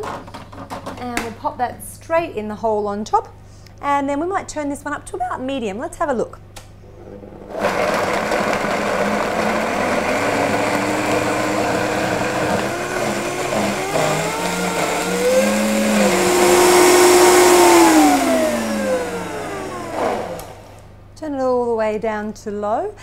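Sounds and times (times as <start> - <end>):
blender motor running: 7.5 - 20.9.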